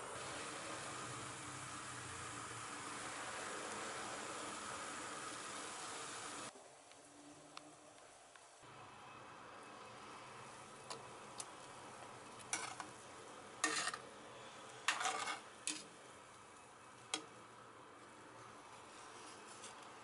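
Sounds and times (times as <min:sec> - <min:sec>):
stock boiling in a pot: 0:00.0 - 0:18.8
metal ladle scraping a pot: 0:12.5 - 0:12.9, 0:13.6 - 0:14.0, 0:14.9 - 0:15.9.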